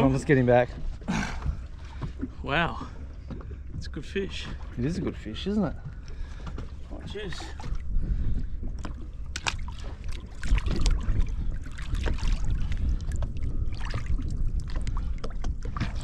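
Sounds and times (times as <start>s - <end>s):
sea water splashing: 0.0s - 16.0s
wind on microphone: 3.7s - 16.0s.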